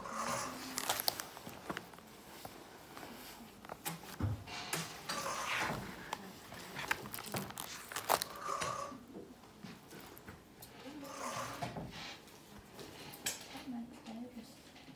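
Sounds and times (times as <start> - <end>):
pages rustling and crinkling: 0.4 - 4.3, 5.5 - 8.4
sheets and wire binding clicks: 0.7 - 2.0, 6.0 - 8.3.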